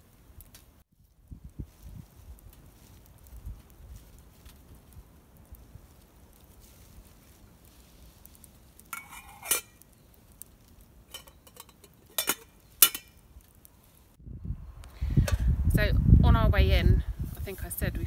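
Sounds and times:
metal items clinking: 8.9 - 9.8, 11.1 - 13.2
ringing metal scrape: 8.9 - 9.8.

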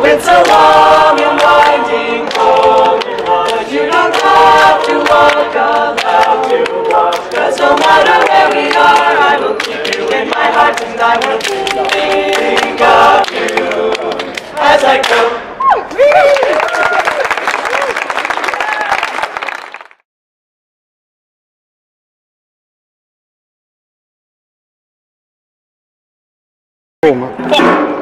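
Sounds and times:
youth choir singing a cappella: 0.0 - 15.6
hand claps: 0.4 - 15.2.

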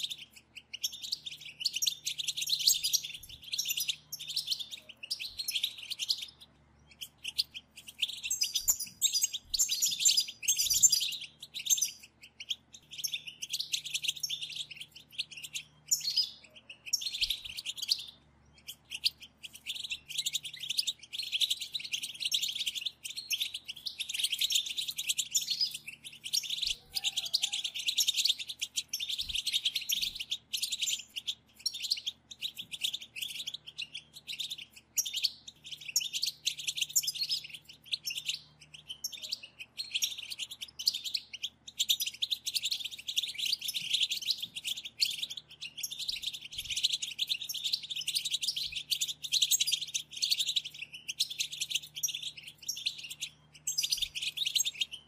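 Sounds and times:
goldfinches twittering: 0.0 - 55.0.

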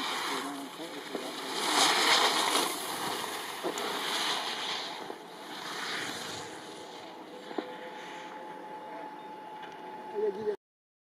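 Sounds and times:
skis scraping on snow: 0.0 - 8.3.

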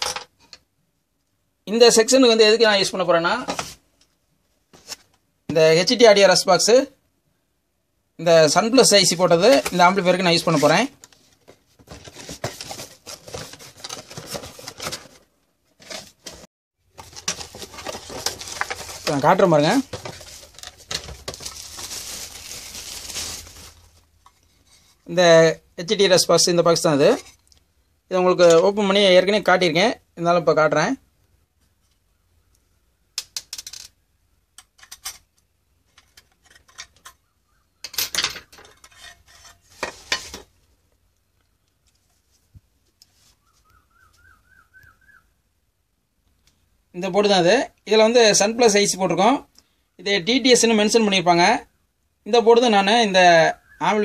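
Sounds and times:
cardboard and packaging rustling: 4.7 - 5.2, 8.8 - 25.0, 39.4 - 40.6.

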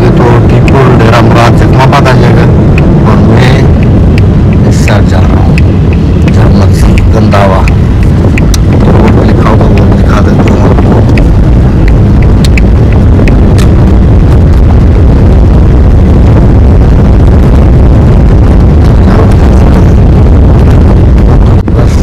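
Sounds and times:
vehicle engine and road rumble: 0.0 - 22.0
faint clicks: 3.7 - 14.0.

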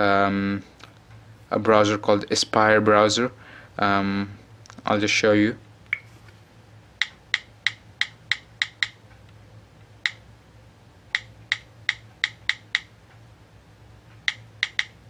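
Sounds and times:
phone keyboard clicks: 7.0 - 9.0, 11.1 - 12.9, 14.2 - 15.0.

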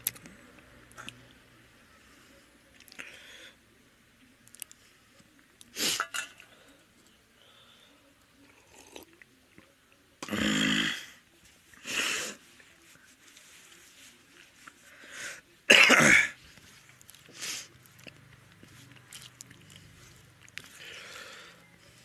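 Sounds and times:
man coughing: 15.7 - 16.4.

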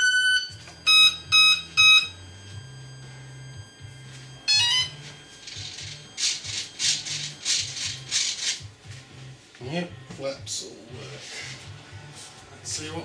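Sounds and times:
rising electronic beeps: 0.0 - 5.2
faint background music: 0.0 - 13.0.

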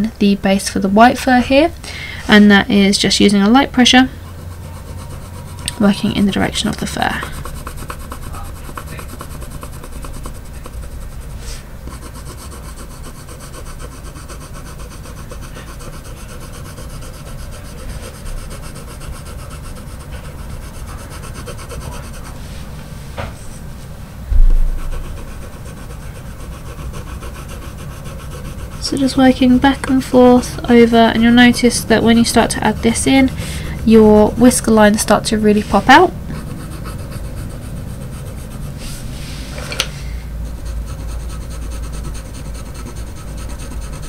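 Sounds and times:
coloured pencil shading on paper: 3.2 - 22.5, 24.8 - 38.9, 40.4 - 44.0
dull thump: 24.3 - 24.9.

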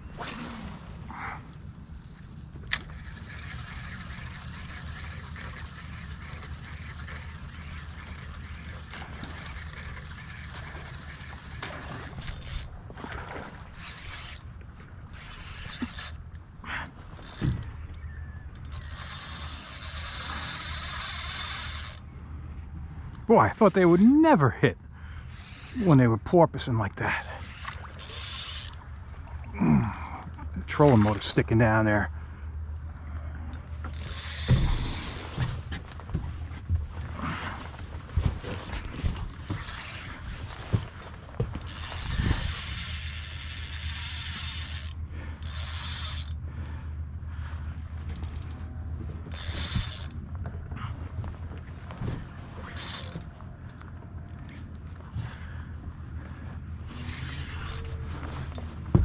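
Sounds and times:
low steady hum: 0.0 - 59.0
fishing reel ratcheting whir: 2.6 - 12.7, 13.6 - 22.1, 27.4 - 29.2, 33.5 - 35.4, 41.5 - 46.4, 49.2 - 50.3, 52.6 - 53.3, 57.0 - 58.6.

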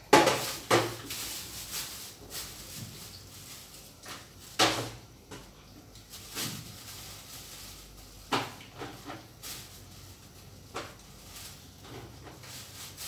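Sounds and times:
utensils and dishes clattering: 0.0 - 5.4.

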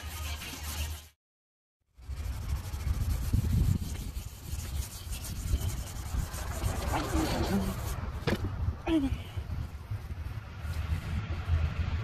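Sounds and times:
sandpaper rubbing back and forth: 0.0 - 1.2, 2.0 - 8.1.

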